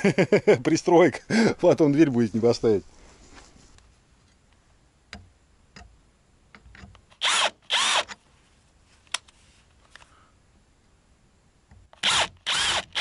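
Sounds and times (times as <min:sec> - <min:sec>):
electric drill running: 0:07.2 - 0:08.1, 0:12.0 - 0:13.0.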